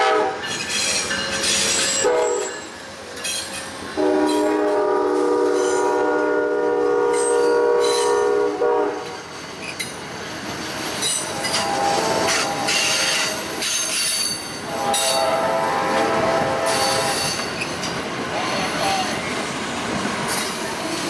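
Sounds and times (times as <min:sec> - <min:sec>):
train horn blast: 0:00.0 - 0:00.4, 0:02.0 - 0:02.6, 0:04.0 - 0:09.2, 0:11.3 - 0:13.4, 0:14.7 - 0:17.4
train wheels on rails: 0:00.0 - 0:21.0.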